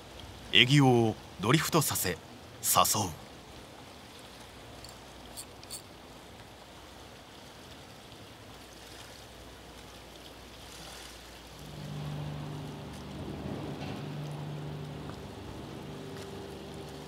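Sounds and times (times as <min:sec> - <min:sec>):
rushing tidal current: 0:06.6 - 0:17.0
low steady hum: 0:09.7 - 0:17.0.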